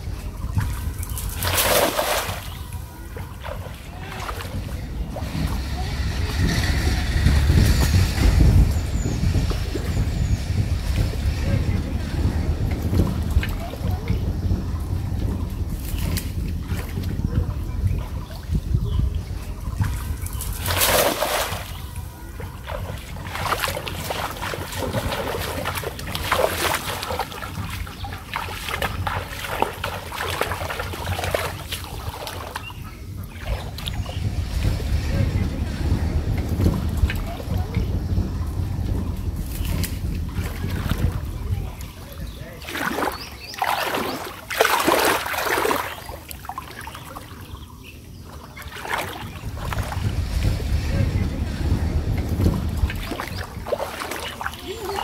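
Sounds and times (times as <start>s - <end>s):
water sloshing and splashing: 0.0s - 55.0s
net splashing onto water: 0.5s - 6.4s, 19.8s - 34.6s, 39.4s - 47.4s, 48.6s - 50.8s, 51.9s - 55.0s.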